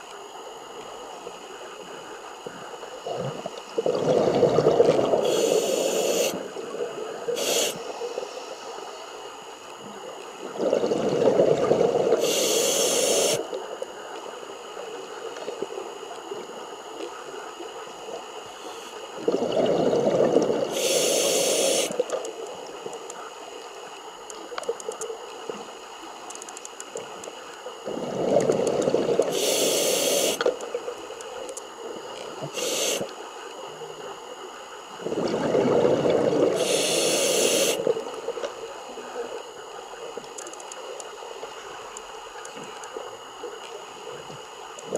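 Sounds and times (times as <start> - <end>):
regulator hiss: 1.0 - 9.4, 11.2 - 13.8, 18.4 - 22.7, 27.0 - 33.3, 34.9 - 39.4
exhaled bubbles underwater: 3.0 - 7.7, 10.4 - 13.6, 19.1 - 22.2, 27.8 - 30.9, 34.9 - 38.5.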